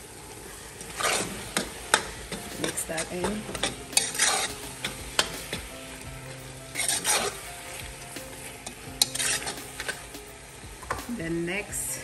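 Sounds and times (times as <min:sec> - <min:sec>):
sizzling: 0:00.0 - 0:12.0
spoon scraping metal pot: 0:01.0 - 0:05.6, 0:06.8 - 0:07.5, 0:08.6 - 0:10.1
spoon stirring thick stew: 0:01.0 - 0:05.7, 0:06.7 - 0:10.1.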